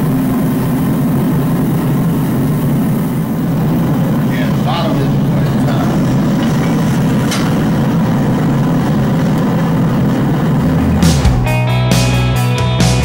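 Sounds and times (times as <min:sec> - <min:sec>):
gas forge droning: 0:00.0 - 0:12.9
rock music with guitar: 0:10.1 - 0:13.0.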